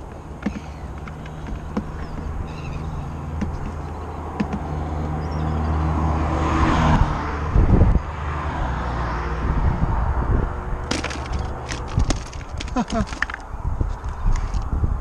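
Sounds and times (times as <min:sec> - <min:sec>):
low engine hum: 0:00.0 - 0:15.0
vehicle passing: 0:00.5 - 0:13.8.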